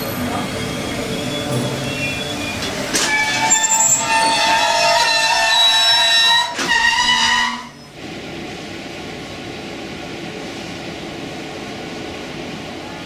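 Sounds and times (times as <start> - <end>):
train wheels squealing: 0.0 - 8.0.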